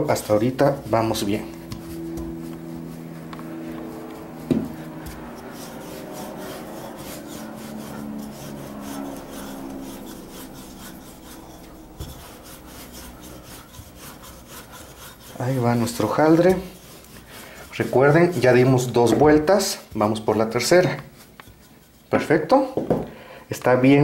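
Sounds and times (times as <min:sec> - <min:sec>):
rolling pin rubbing on dough: 0:00.0 - 0:22.8.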